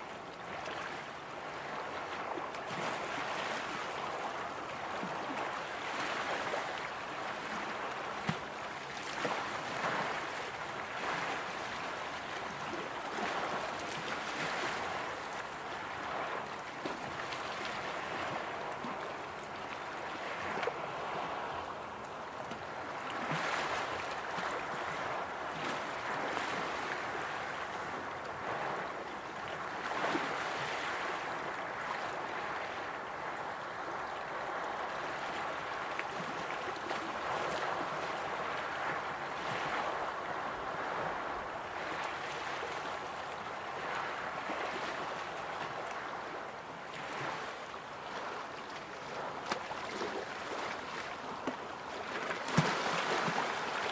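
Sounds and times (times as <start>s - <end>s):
small waves lapping on shore: 0.0s - 53.9s
water splashing against stones: 49.4s - 53.9s.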